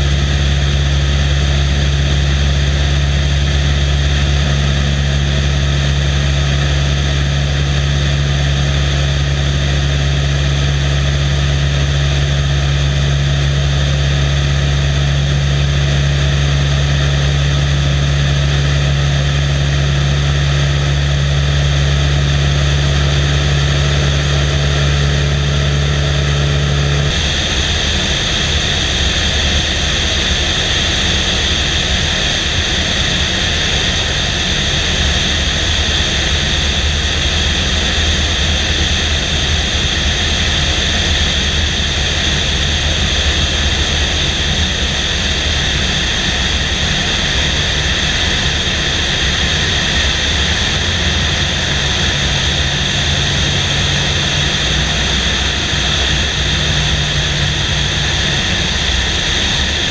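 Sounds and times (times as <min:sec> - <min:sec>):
airplane engine drone: 0:00.0 - 0:59.9
wind rushing over microphone: 0:26.4 - 0:59.9.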